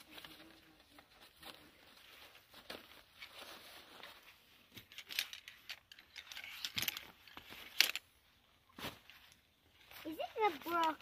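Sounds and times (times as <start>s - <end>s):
chair frame clicks and rattles: 4.8s - 8.0s.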